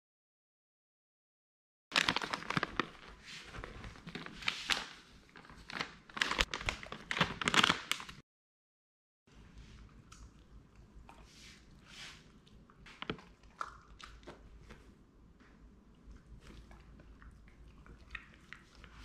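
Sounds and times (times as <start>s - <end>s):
plastic bag crinkling: 1.9s - 8.2s.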